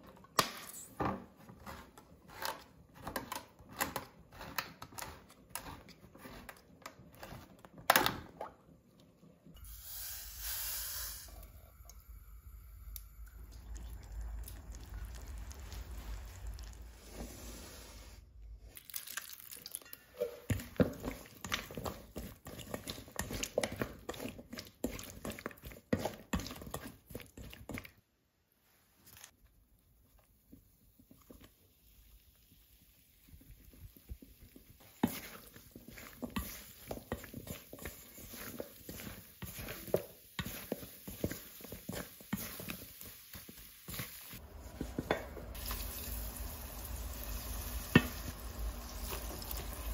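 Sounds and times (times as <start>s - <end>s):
spatula scraping glass bowl: 1.4s - 7.6s.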